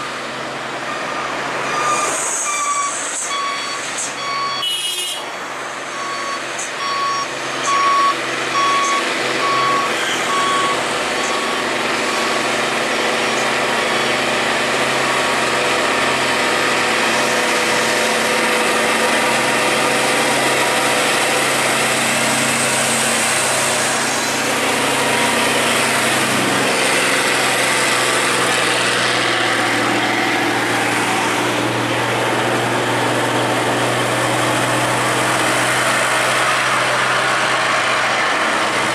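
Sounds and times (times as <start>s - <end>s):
diesel truck engines: 0.0s - 38.9s
electronic warning beeper: 1.1s - 4.8s, 5.9s - 11.6s.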